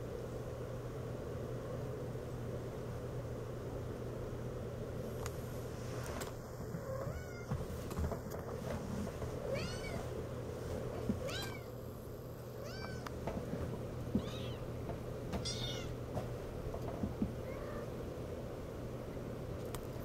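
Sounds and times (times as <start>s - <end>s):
kittens mewing: 6.8s - 7.6s, 15.4s - 16.0s.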